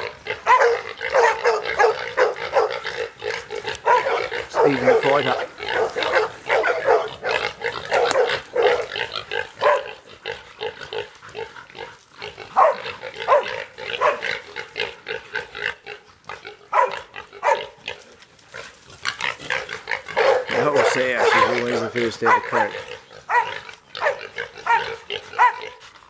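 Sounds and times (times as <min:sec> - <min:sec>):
dogs barking: 0:00.0 - 0:10.0, 0:12.5 - 0:14.5, 0:16.6 - 0:17.8, 0:19.5 - 0:25.9
pigs squealing and grunting: 0:00.0 - 0:26.0.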